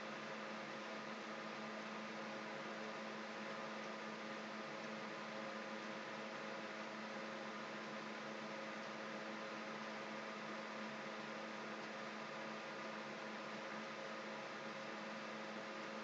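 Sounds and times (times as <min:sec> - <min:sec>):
constant hiss: 0:00.0 - 0:16.0
low electrical hum: 0:00.0 - 0:16.0.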